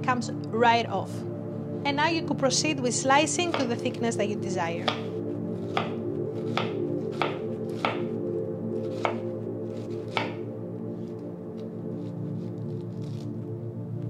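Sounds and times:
background music: 0.0 - 14.0
knife slicing on cutting board: 4.8 - 8.1, 8.8 - 10.4, 11.9 - 13.3.

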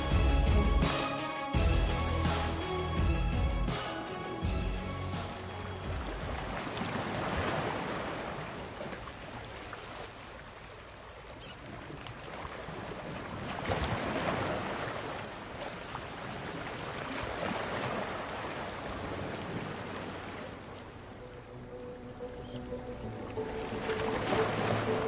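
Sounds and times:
water splashing against a boat: 5.7 - 21.2.

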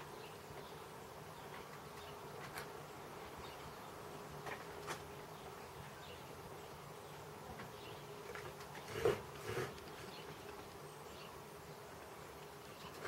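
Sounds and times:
knife scraping wood: 8.8 - 10.1.

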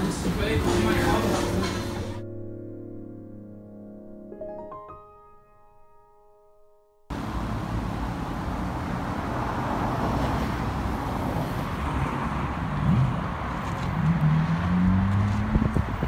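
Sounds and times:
road traffic rumble: 7.1 - 16.0
vehicle engine speeding up: 7.1 - 16.0.

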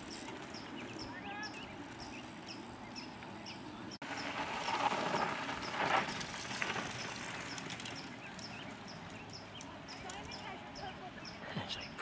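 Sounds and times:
bird chirping: 0.0 - 4.4, 7.0 - 12.0
bike tyres skidding on dirt: 4.0 - 9.6.

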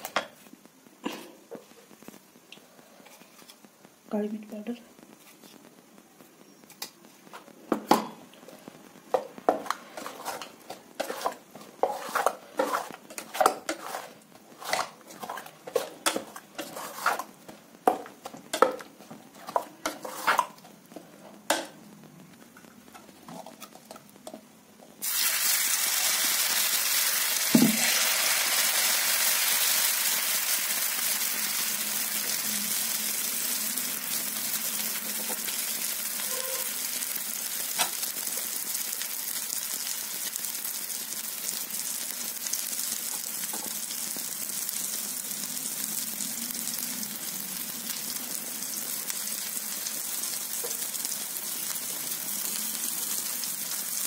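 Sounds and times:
batter sizzling on hot griddle: 8.0 - 54.0
spoon stirring batter in steel bowl: 9.2 - 20.6.

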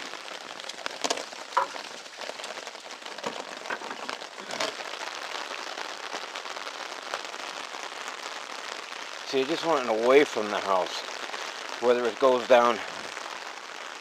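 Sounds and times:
raindrop taps: 0.0 - 5.1
rain pattering on an umbrella: 0.0 - 14.0.

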